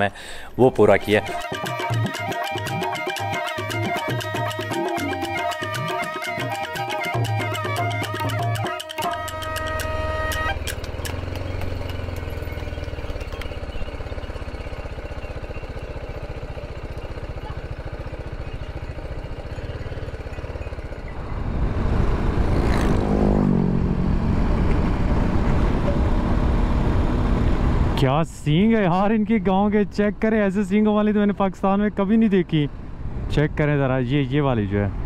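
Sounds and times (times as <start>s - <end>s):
motorcycle engine droning: 1.3s - 28.0s.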